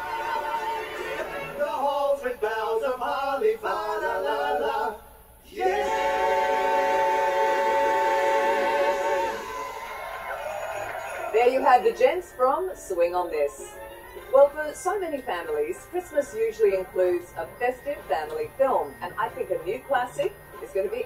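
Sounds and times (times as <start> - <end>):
male vocal group singing: 0.0 - 9.4.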